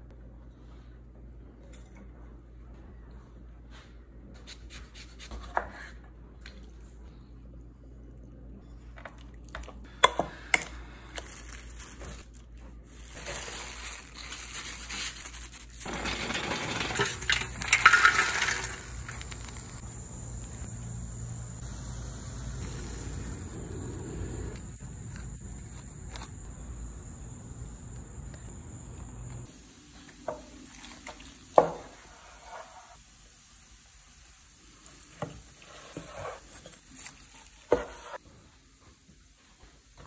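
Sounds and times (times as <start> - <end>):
plastic wrap crinkling: 11.2 - 19.8
high insect drone: 18.6 - 29.5.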